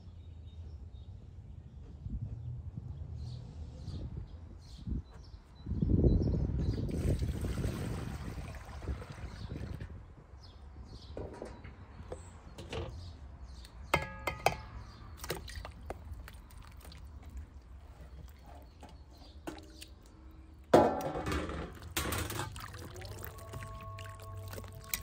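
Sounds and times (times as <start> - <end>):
dishes clattering: 13.9 - 14.8, 20.8 - 22.6
utensils and dishes clinking: 14.0 - 14.8.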